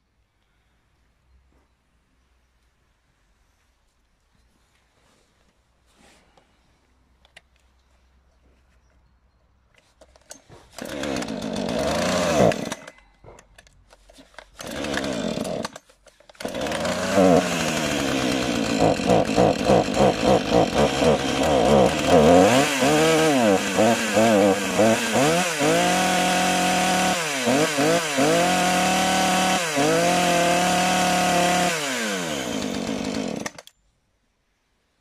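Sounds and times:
chainsaw starting and running: 0:10.7 - 0:13.0, 0:14.2 - 0:33.7.

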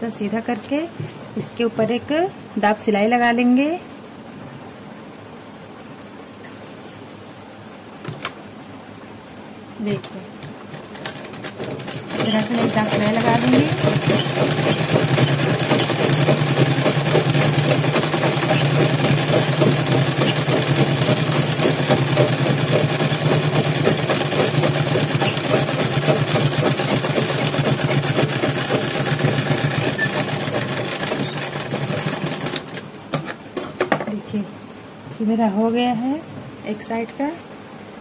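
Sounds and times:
sewing machine stitching: 0:10.7 - 0:32.8.

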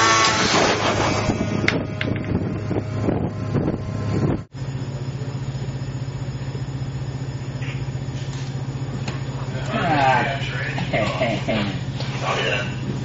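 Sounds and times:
low pulsing machine throb: 0:00.0 - 0:13.0
wind buffeting microphone: 0:00.4 - 0:04.5.

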